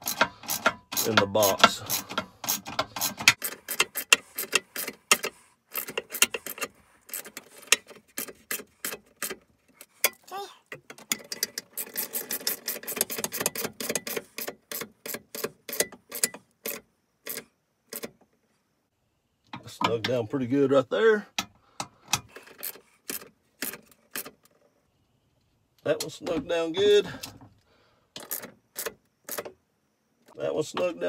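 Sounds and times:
socket ratchet clicking: 0.0s - 9.4s, 11.0s - 18.1s.

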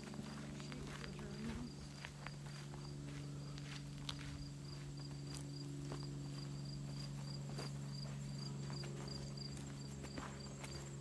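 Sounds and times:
footsteps crunching on forest floor: 0.0s - 11.0s
low steady hum: 0.0s - 11.0s
insect chirping: 4.1s - 11.0s.

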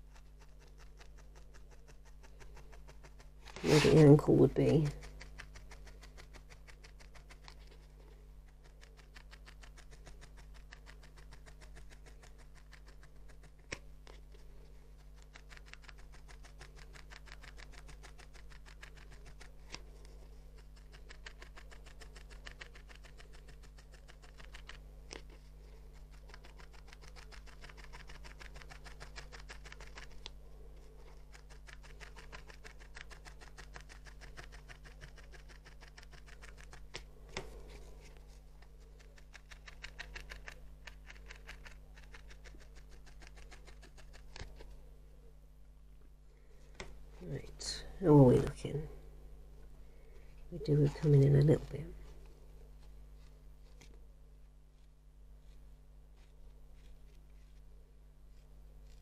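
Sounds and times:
felting needle stabbing wool: 0.0s - 44.7s
faint steady hum: 0.0s - 59.0s.

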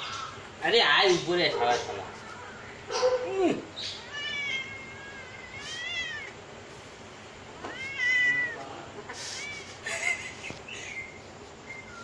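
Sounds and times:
cat meowing: 3.8s - 6.4s, 7.6s - 8.7s.

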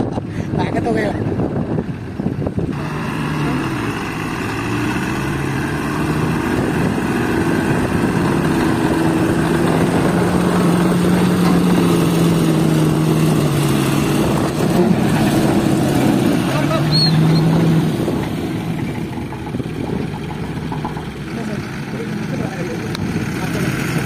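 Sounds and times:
truck diesel engine under load: 0.0s - 24.0s.

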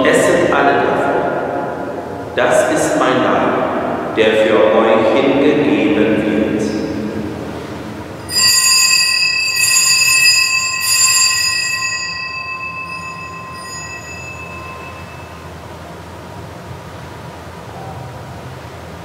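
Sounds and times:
altar bell ringing: 8.2s - 15.9s.

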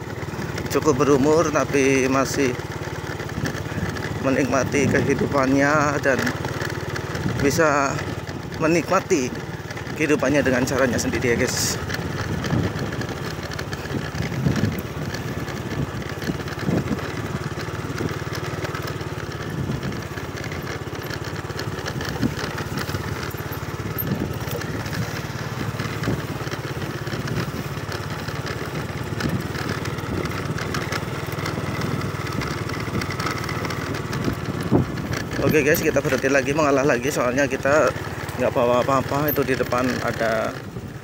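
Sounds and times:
motorcycle engine running: 0.0s - 41.0s.

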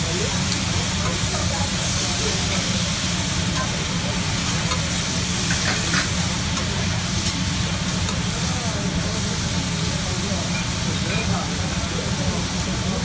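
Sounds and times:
vegetables sizzling on a griddle: 0.0s - 13.0s
metal spatula clinking and scraping: 5.4s - 7.4s.

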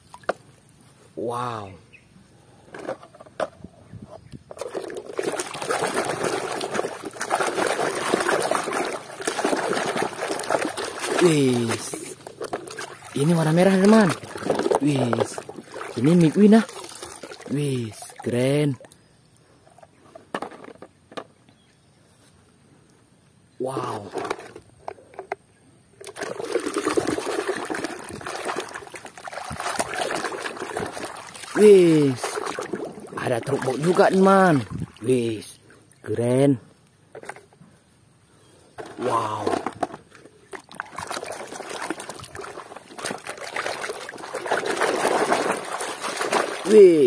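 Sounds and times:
water sloshing in plastic tub: 4.2s - 19.0s, 26.0s - 36.0s, 38.8s - 47.0s.

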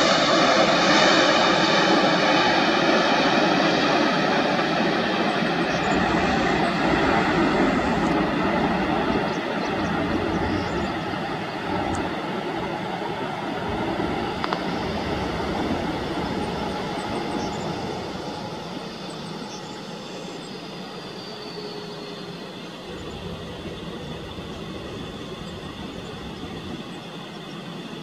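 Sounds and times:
jet engines rumbling: 0.0s - 28.0s
faint high whine: 4.2s - 28.0s.

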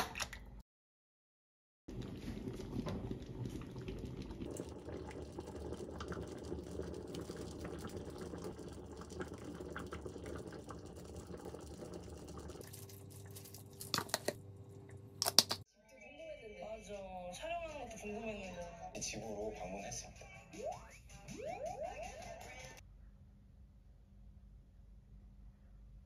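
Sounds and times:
curry bubbling in a saucepan: 1.9s - 14.4s.

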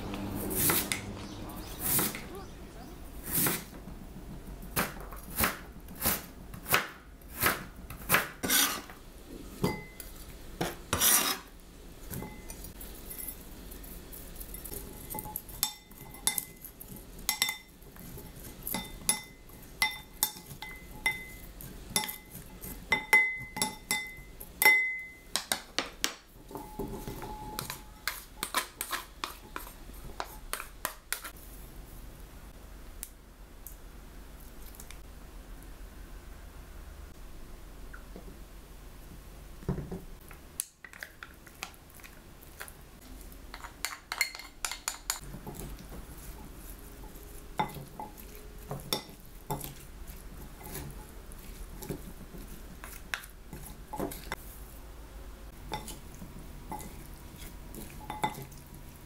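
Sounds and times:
knife cutting on a board: 4.8s - 8.9s, 10.6s - 11.5s
utensils clinking in ceramic bowl: 14.4s - 25.6s, 43.5s - 54.4s, 55.7s - 58.6s.

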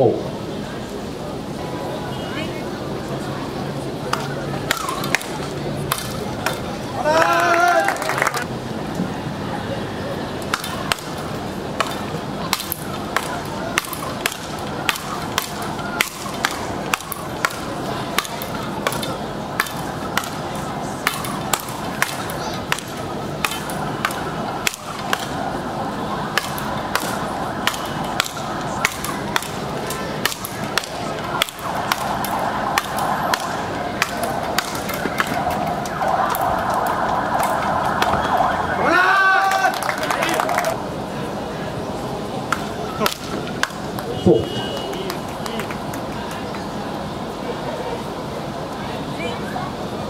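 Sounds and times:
paddles cracking ball: 11.8s - 25.4s, 26.3s - 38.2s.

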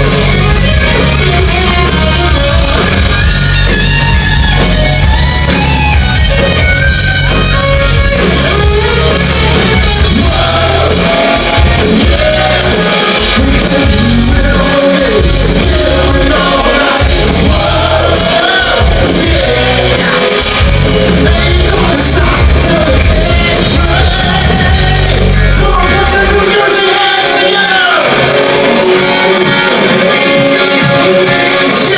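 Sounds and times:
bass guitar: 0.0s - 31.9s
drums: 0.0s - 31.9s
electric guitar: 0.0s - 31.9s
man singing: 10.0s - 28.8s, 30.8s - 31.9s.

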